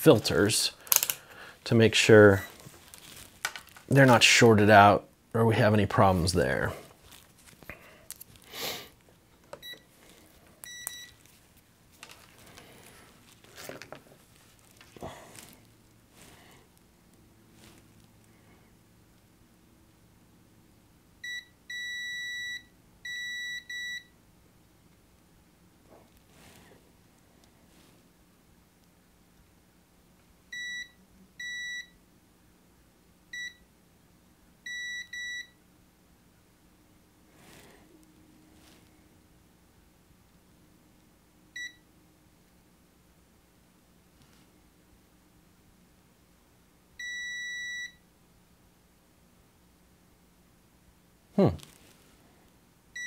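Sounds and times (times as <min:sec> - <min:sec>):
handling rustle: 0:02.5 - 0:04.0, 0:06.1 - 0:08.5, 0:11.1 - 0:16.4
multimeter beeping: 0:10.6 - 0:11.2
multimeter continuity beeps: 0:10.6 - 0:11.2, 0:21.2 - 0:24.1, 0:30.5 - 0:32.0, 0:33.3 - 0:33.6, 0:34.7 - 0:35.6, 0:41.6 - 0:41.9, 0:47.0 - 0:48.0.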